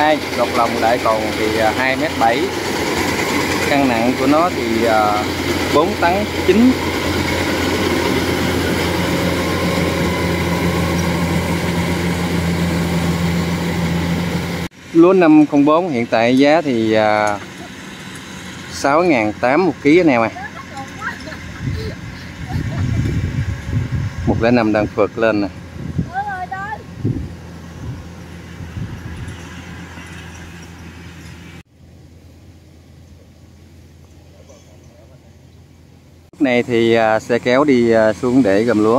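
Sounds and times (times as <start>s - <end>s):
combine harvester running: 0.0s - 38.9s
faint outdoor noise: 24.4s - 38.9s.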